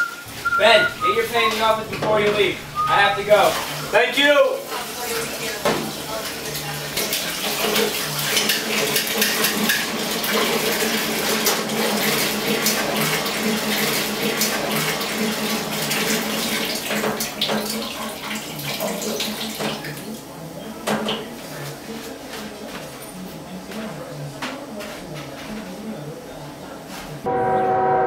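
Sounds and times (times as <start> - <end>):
faucet running into sink: 4.6 - 20.2
dishes and utensils clinking: 4.7 - 11.6.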